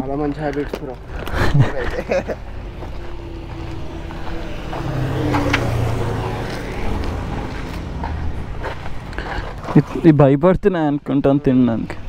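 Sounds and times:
vehicle engine running: 0.7 - 9.9.

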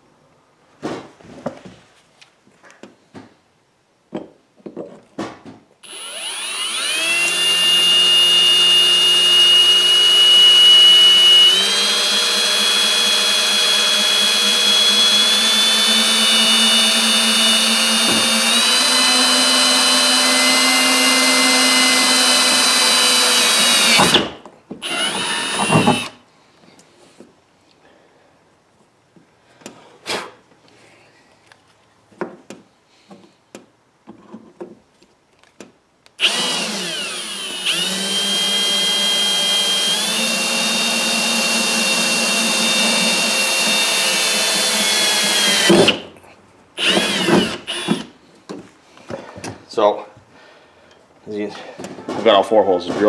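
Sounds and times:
cordless drill motor whine: 5.8 - 24.2, 24.8 - 26.2, 36.2 - 46.0, 46.8 - 48.1.

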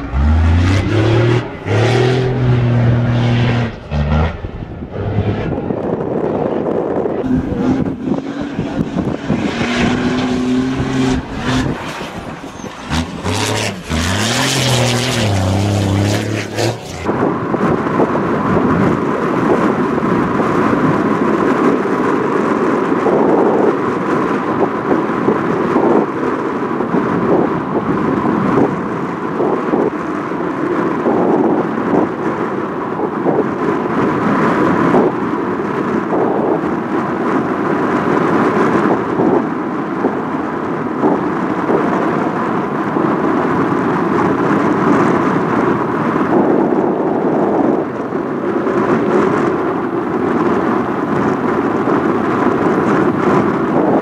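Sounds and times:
truck diesel engine revving: 0.0 - 6.0, 7.2 - 17.1
distant truck engines: 0.0 - 21.6
wind buffeting microphone: 0.0 - 54.0.

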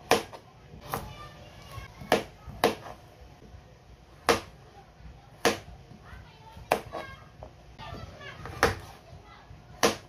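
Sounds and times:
knife chopping on cutting board: 0.0 - 1.0, 2.0 - 3.0, 4.2 - 4.6.

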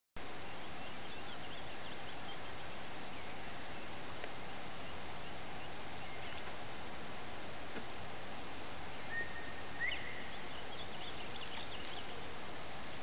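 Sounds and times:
outdoor background hiss: 0.2 - 13.0
faint bird chirps: 0.3 - 6.6, 9.0 - 13.0.

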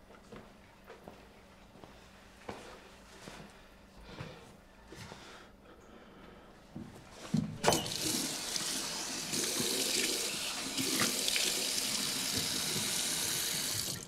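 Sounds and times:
tap running water into sink: 7.6 - 14.0.

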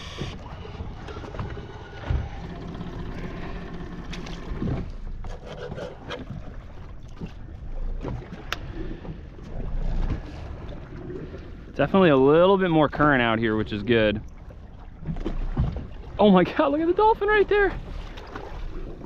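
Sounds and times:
water noise around boat: 0.0 - 19.0
wind: 0.0 - 19.0
knocks and clicks from gear: 1.0 - 6.3.

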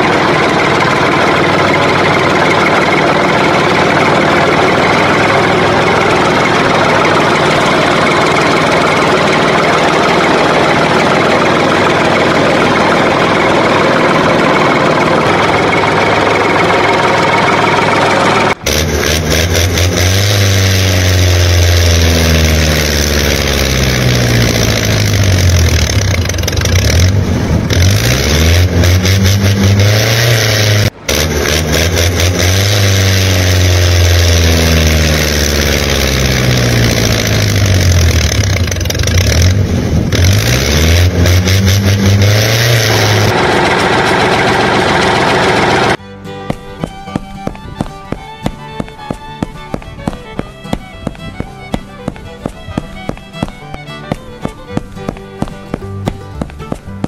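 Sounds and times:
tractor engine revving: 0.0 - 57.0.

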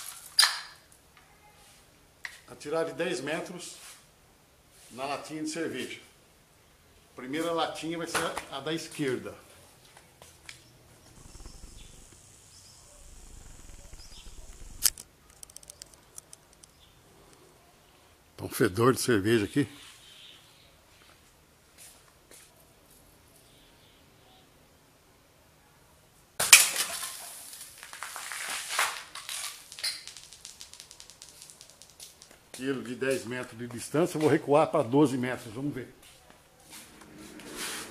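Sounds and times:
carbonated beer hissing and crackling: 11.0 - 15.6, 26.7 - 32.4
high-pitched insect buzz: 11.0 - 15.9, 29.7 - 32.2
faint clicks: 13.0 - 17.4, 29.7 - 32.4
can toppling onto concrete: 26.4 - 32.4.

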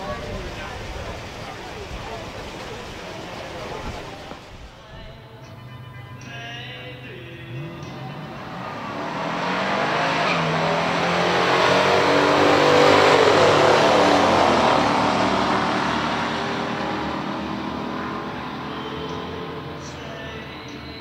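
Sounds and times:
muscle car engine revving: 7.0 - 20.3.

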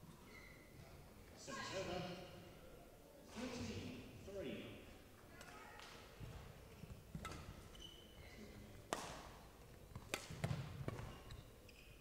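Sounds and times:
rackets striking shuttlecock: 7.1 - 7.6, 8.9 - 11.3.

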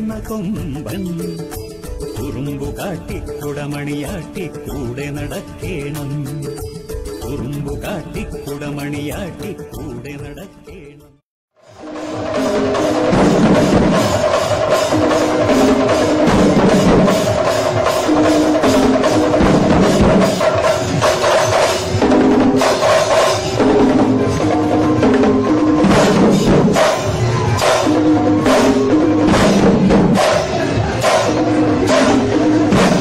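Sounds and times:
fast drumming: 11.7 - 33.0.

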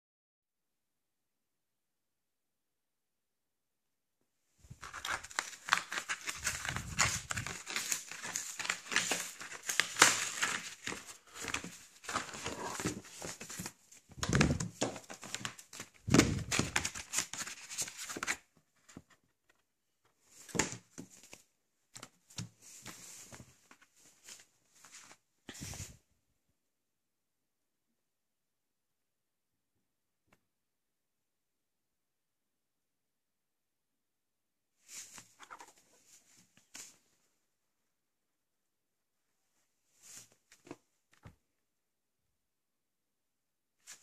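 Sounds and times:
book handling rustles and knocks: 4.7 - 19.3, 20.3 - 25.8
cardboard envelope tearing: 4.8 - 18.4.

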